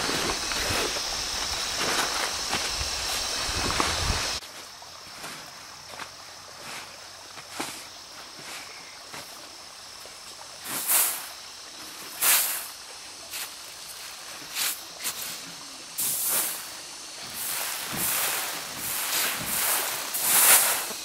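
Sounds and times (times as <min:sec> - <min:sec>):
insects trilling: 0:00.0 - 0:21.0
winnowing fan whooshes: 0:16.0 - 0:21.0.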